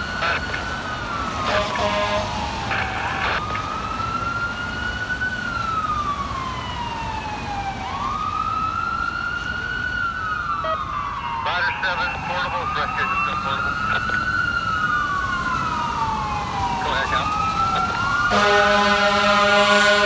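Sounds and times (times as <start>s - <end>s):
fire truck siren wailing: 0.0s - 20.0s
air horn blast: 1.4s - 2.4s, 18.3s - 20.0s.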